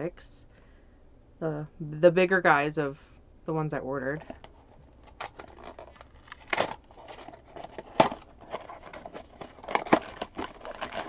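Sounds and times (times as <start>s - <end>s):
cardboard tearing: 5.0s - 11.0s.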